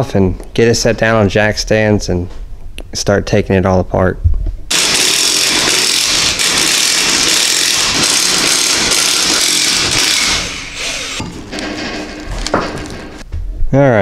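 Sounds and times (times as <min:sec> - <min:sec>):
impact wrench hammering lug nuts: 0:04.7 - 0:13.2.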